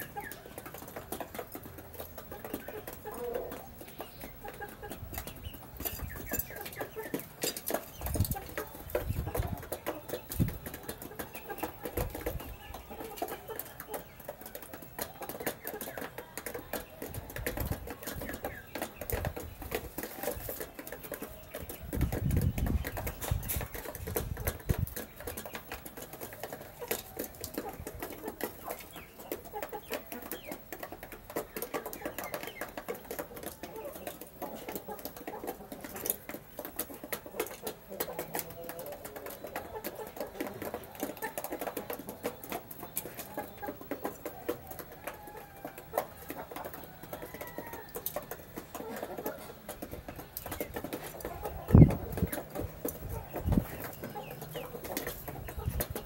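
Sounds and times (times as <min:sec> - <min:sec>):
chickens clucking softly: 0:00.0 - 0:56.0
chickens pecking beak taps: 0:00.0 - 0:56.0.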